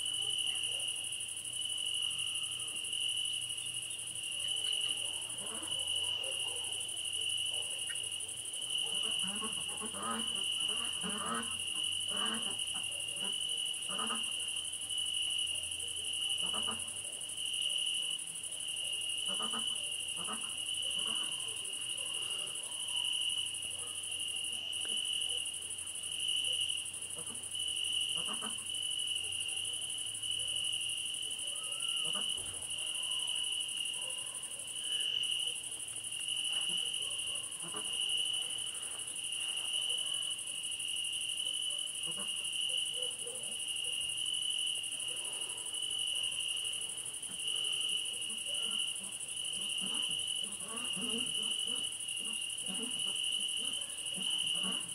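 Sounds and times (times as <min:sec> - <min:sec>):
crickets chirping: 0:00.0 - 0:54.9
high-pitched insect hiss: 0:07.1 - 0:54.9.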